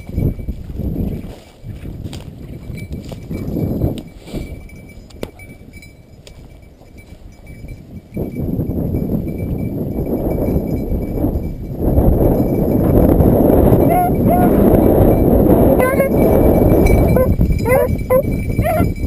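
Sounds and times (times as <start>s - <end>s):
footsteps through dry grass: 0.0s - 4.5s
wind buffeting microphone: 0.0s - 19.0s.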